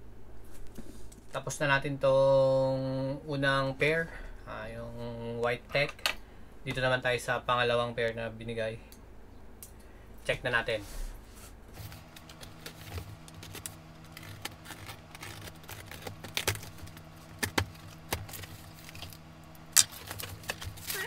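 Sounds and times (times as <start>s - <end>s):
steady low hum: 0.0s - 21.0s
cardboard box tape scratching: 11.7s - 19.2s, 19.8s - 21.0s.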